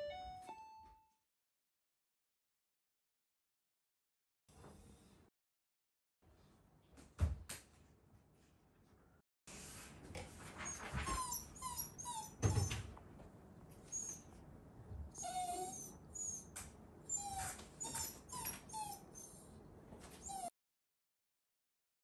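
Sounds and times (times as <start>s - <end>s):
dog whining: 10.7s - 12.8s, 13.8s - 14.3s, 15.1s - 19.5s, 20.2s - 20.5s.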